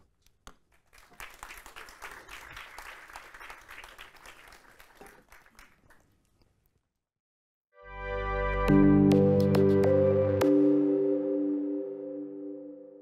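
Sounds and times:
audience applause: 0.7s - 6.2s.

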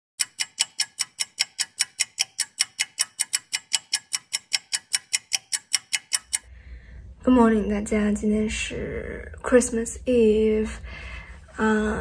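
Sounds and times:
clock-like ticking: 0.2s - 6.5s.

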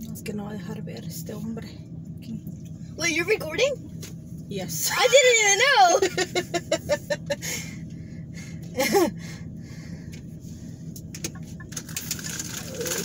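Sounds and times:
car interior hum: 0.0s - 13.0s
person laughing: 8.7s - 9.2s.

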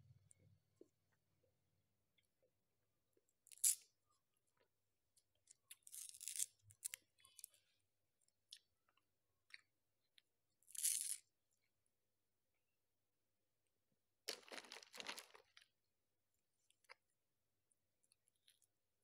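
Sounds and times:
ice cream cone crunching: 14.3s - 15.6s.

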